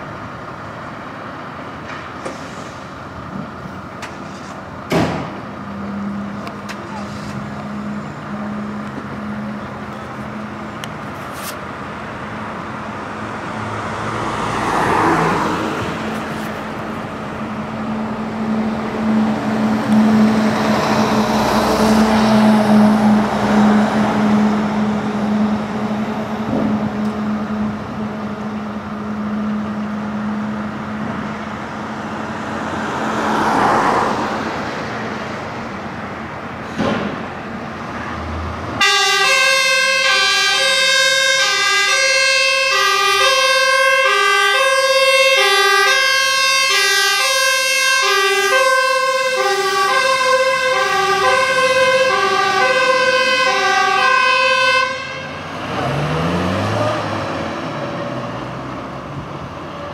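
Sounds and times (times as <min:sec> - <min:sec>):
engine hum: 0:00.0 - 0:59.9
truck engine accelerating: 0:00.0 - 0:59.9
vehicle passing: 0:11.8 - 0:37.2, 0:41.7 - 0:59.9
fire truck two-tone siren: 0:17.5 - 0:31.7, 0:38.8 - 0:57.0.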